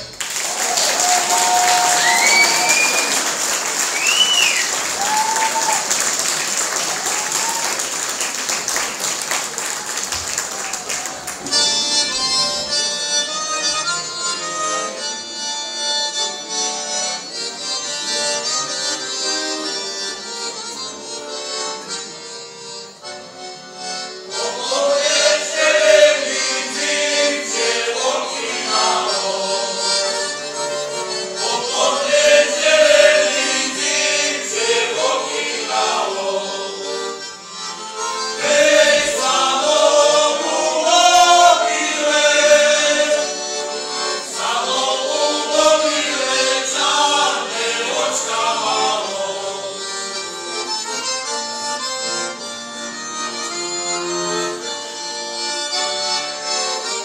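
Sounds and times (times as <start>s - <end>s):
piano accordion: 0.0s - 57.0s
male choir singing in unison: 24.4s - 30.0s, 31.4s - 36.8s, 38.4s - 43.4s, 44.2s - 49.9s.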